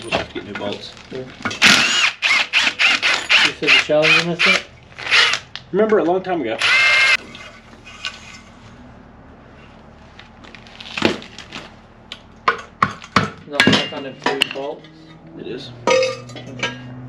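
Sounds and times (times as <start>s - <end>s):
sharp metal clanks: 12.5s - 15.2s, 15.8s - 17.0s
metal parts clinking and knocking: 15.8s - 16.9s.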